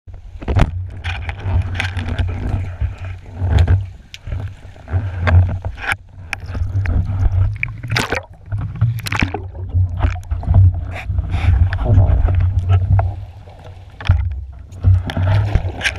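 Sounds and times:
underwater water rumble: 0.1s - 15.9s
diving gear knocking: 6.4s - 11.0s.

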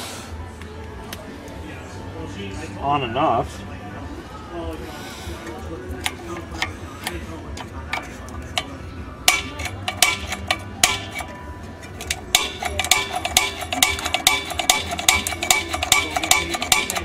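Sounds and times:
metal clicks and clinks: 9.3s - 17.0s.

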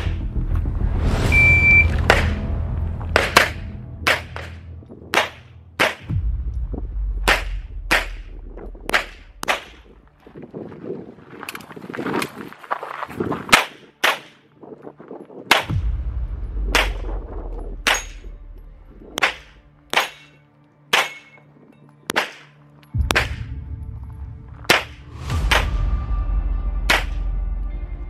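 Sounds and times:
pistol shots: 5.1s - 6.1s, 8.9s - 9.9s, 19.2s - 21.4s, 22.1s - 23.5s.

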